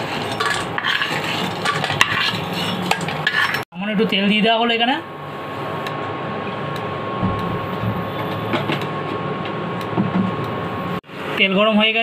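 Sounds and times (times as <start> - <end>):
cooktop fan hiss: 0.0 - 12.0.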